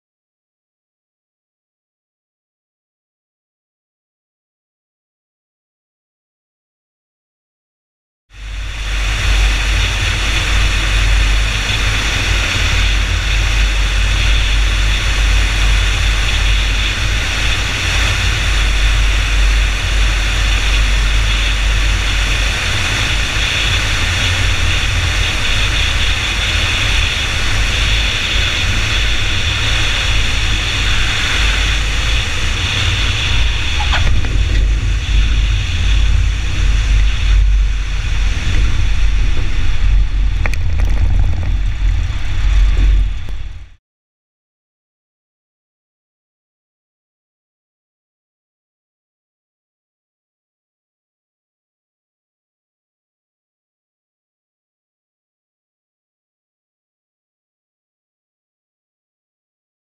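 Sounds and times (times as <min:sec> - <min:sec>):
aircraft engine and propeller: 0:08.3 - 0:43.8
plane rolling on runway: 0:08.3 - 0:43.8
wind rush on microphone: 0:08.3 - 0:43.8.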